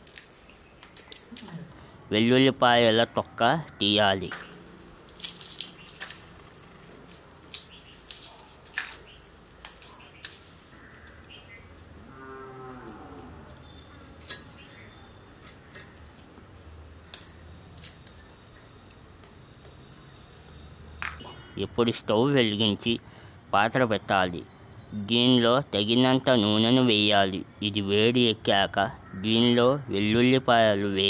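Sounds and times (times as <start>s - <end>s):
garlic skins crackling: 0.0s - 1.7s, 4.2s - 21.2s
drawn-out pitched call: 4.4s - 21.5s.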